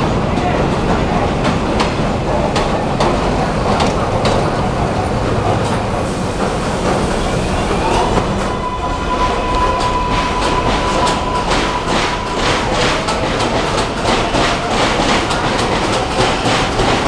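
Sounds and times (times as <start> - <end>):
subway trains rumbling past: 0.0 - 17.0
wheels clacking over rail joints: 9.5 - 17.0.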